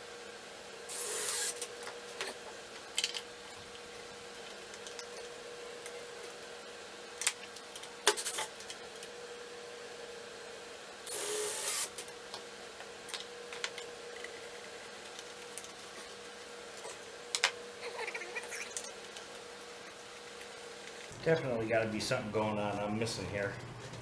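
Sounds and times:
cordless drill whine: 0:00.9 - 0:01.6, 0:11.1 - 0:11.9.

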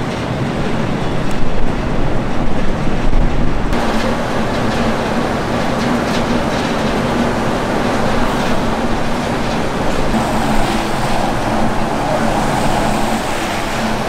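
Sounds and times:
city street noise: 0:00.0 - 0:14.0
low hum: 0:03.8 - 0:14.0.

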